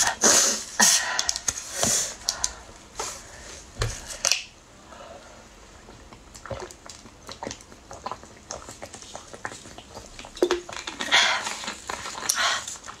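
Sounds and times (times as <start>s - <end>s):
person gulping: 5.8s - 12.4s.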